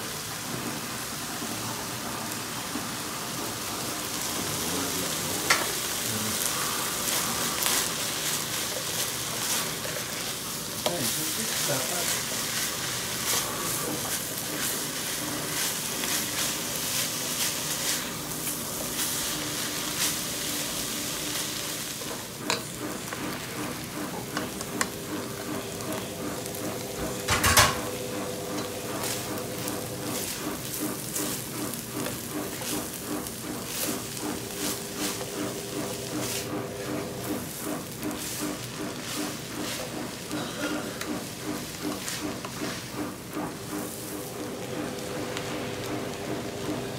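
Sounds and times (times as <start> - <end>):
food sizzling in a pot: 0.0 - 40.3
spatula scraping and tossing: 6.3 - 25.7, 28.4 - 44.7.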